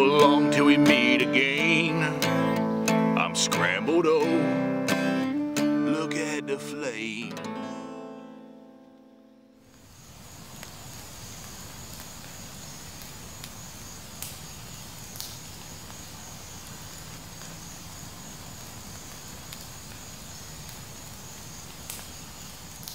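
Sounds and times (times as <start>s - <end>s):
wood fire crackling: 9.6s - 22.9s.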